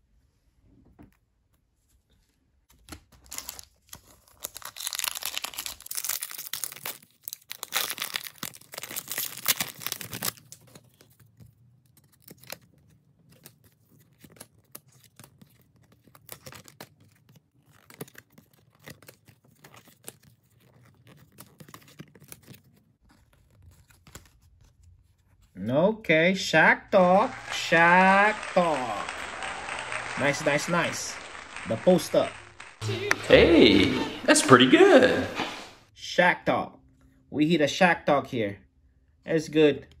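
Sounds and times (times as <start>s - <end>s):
cards clicking and rustling: 2.7s - 25.2s
wrapper crackling and crinkling: 3.0s - 24.8s.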